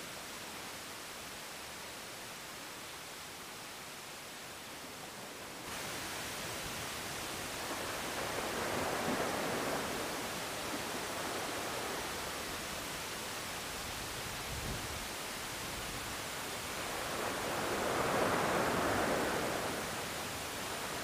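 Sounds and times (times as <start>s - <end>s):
waves washing against breakwater: 5.2s - 21.0s.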